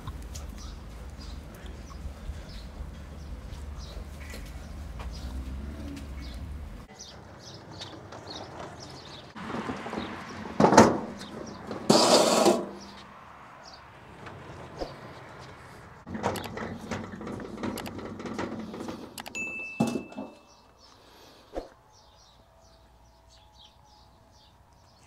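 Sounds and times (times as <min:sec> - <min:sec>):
small birds chirping: 0:00.0 - 0:10.4, 0:12.8 - 0:16.9, 0:20.2 - 0:25.0
wheelbarrow rattling: 0:06.8 - 0:13.0, 0:16.1 - 0:20.5.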